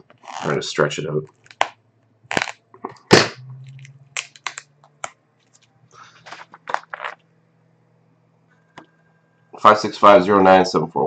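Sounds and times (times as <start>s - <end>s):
plastic wrap crackling: 2.3s - 2.6s, 3.6s - 7.2s.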